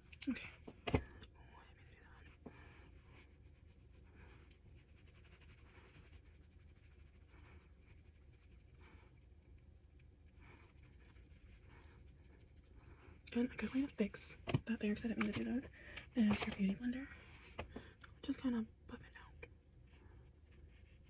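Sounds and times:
makeup brush swishing on skin: 2.0s - 15.7s.

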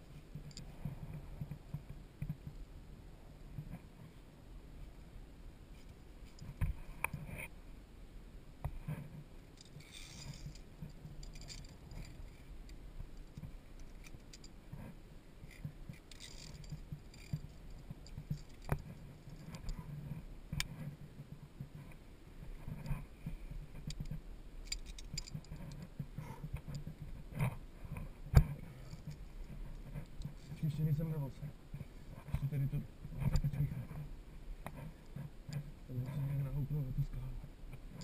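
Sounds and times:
carabiners clinking on steel cable: 9.5s - 14.6s, 15.4s - 19.8s, 23.8s - 25.9s, 28.8s - 30.8s.

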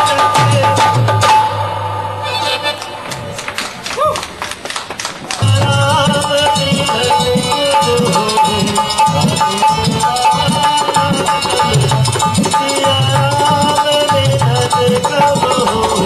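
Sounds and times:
hand drum beating: 5.4s - 16.0s.

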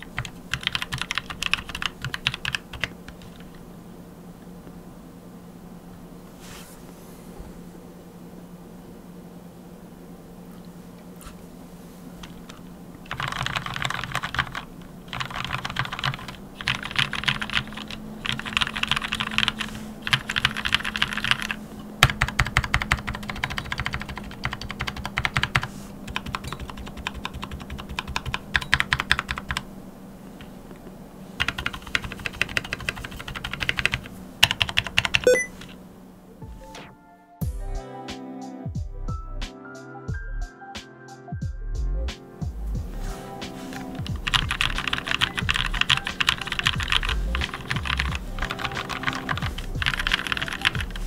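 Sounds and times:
mechanical keyboard typing: 0.0s - 3.6s, 12.2s - 29.6s, 31.4s - 35.8s, 44.0s - 51.0s.

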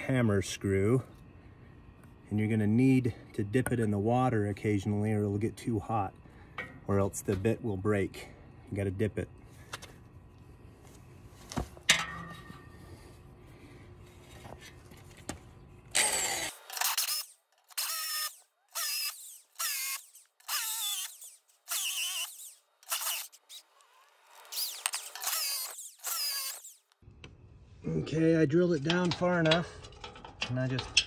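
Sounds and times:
hammer drill boring into concrete: 15.9s - 26.9s.

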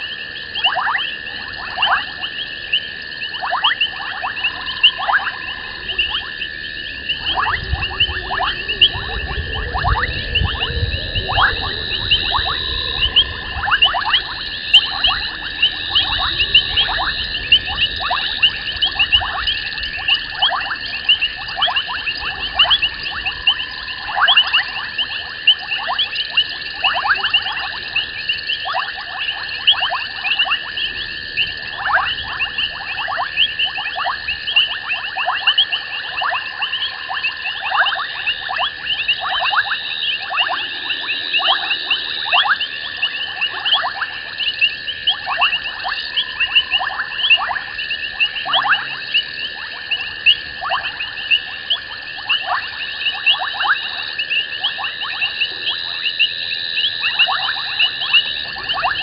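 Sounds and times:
high-pitched insect trill: 0.0s - 59.0s
rapid frog chirps: 0.0s - 59.0s.

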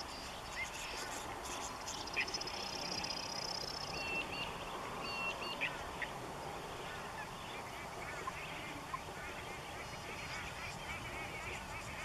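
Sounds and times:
flock of parakeets chattering: 6.8s - 12.0s.

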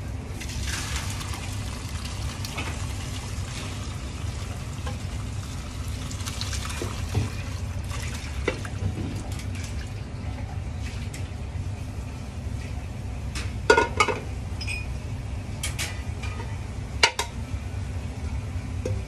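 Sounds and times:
liquid splashing and trickling: 0.4s - 11.2s.

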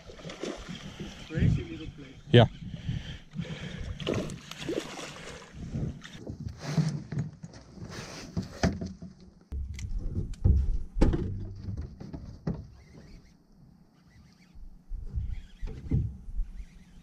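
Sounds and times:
knocks and thumps on boat deck: 8.6s - 12.8s.

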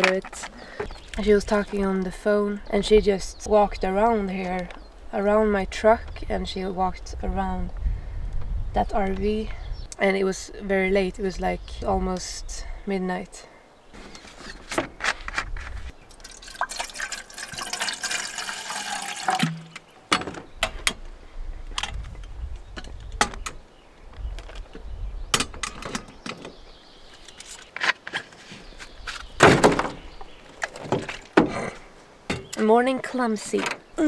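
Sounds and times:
water pouring into metal pot: 16.1s - 19.7s.

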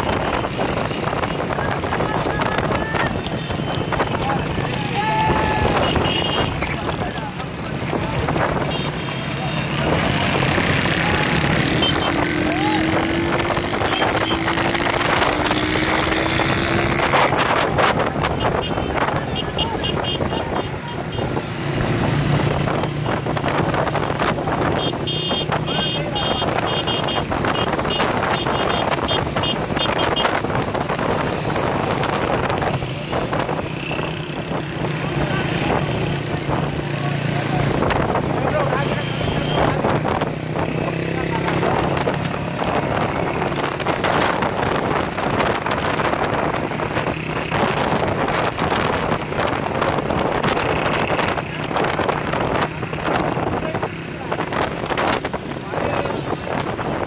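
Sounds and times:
motorcycle engines running: 0.0s - 57.0s
wind buffeting microphone: 39.7s - 57.0s.

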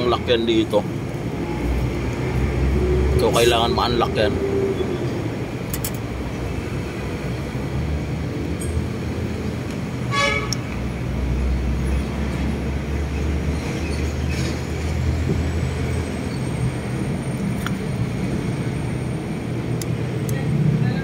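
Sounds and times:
horn toot: 10.1s - 10.6s.

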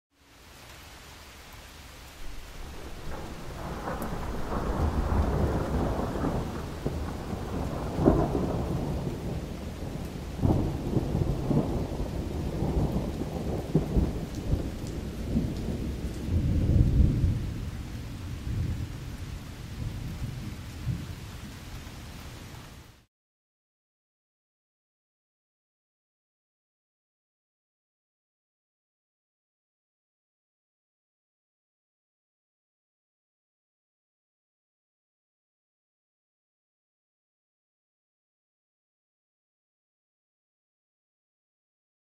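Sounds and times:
steady rain: 0.1s - 23.1s
thunder rumbling: 2.2s - 21.7s.

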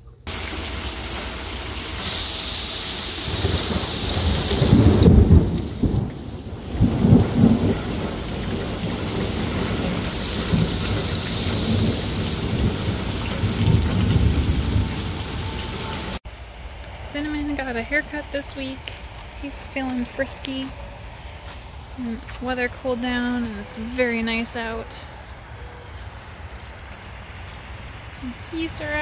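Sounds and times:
heavy rain falling: 0.3s - 16.2s, 28.0s - 29.0s
thunder rumbling: 0.3s - 16.2s.

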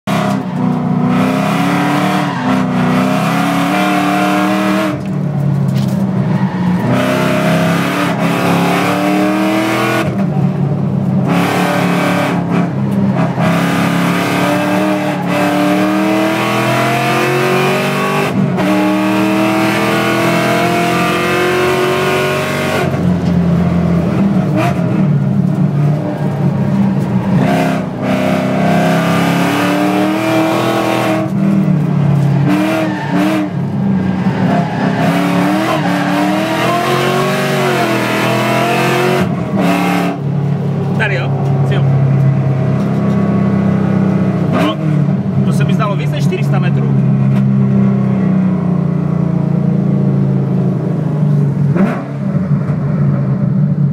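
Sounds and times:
car engine revving through gears: 0.0s - 53.9s.

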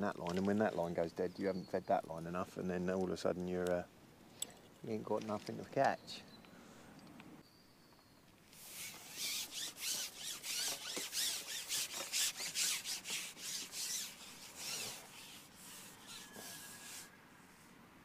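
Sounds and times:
fishing pole rubbing through hands: 8.5s - 17.7s.

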